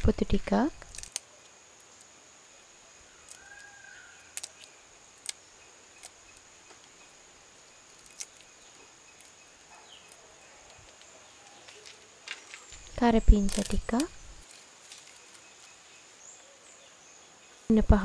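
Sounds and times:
dry bark snapping: 0.8 - 1.3, 3.2 - 7.0, 7.9 - 15.7.

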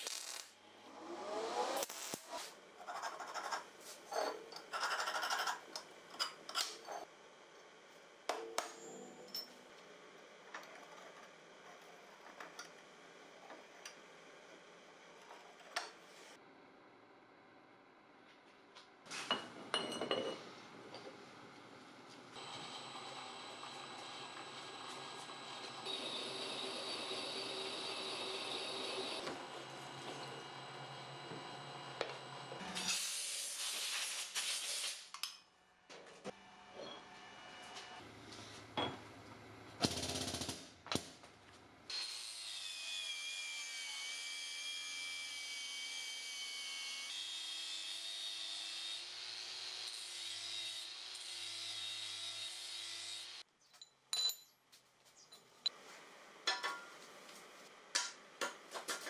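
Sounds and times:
angle grinder grinding steel: 22.4 - 29.3
metal clinks and knocks: 53.8 - 54.6.

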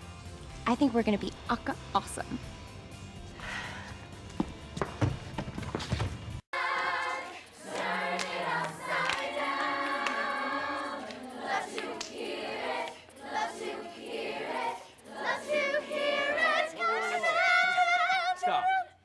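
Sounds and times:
women singing a cappella: 6.6 - 19.0
solo voice singing with vibrato: 15.3 - 19.0.

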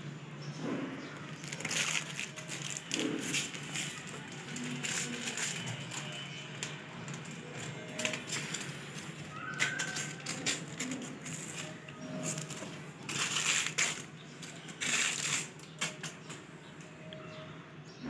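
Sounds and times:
plastic bag crinkling: 1.2 - 16.2.

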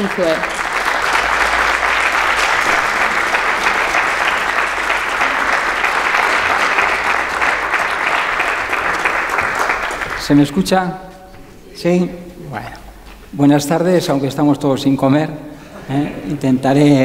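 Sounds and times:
audience applauding: 0.0 - 10.7.

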